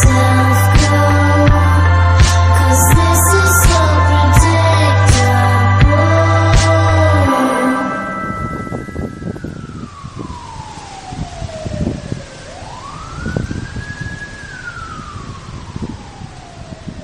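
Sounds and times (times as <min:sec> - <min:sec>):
low rumbling background: 0:00.0 - 0:09.7
siren wailing: 0:00.0 - 0:17.0.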